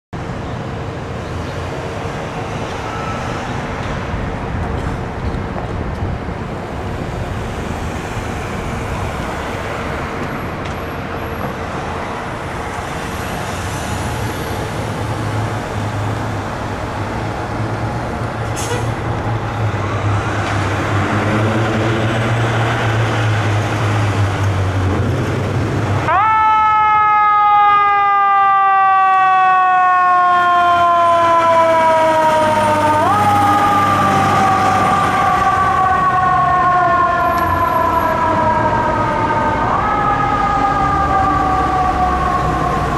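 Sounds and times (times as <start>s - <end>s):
city street noise: 0.2s - 42.9s
fire engine diesel rumble: 0.2s - 42.9s.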